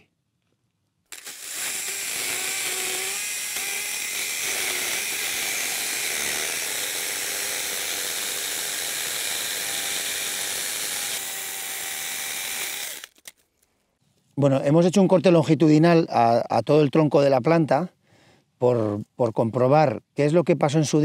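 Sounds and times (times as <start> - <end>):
chainsaw cutting wood: 1.1 - 13.3.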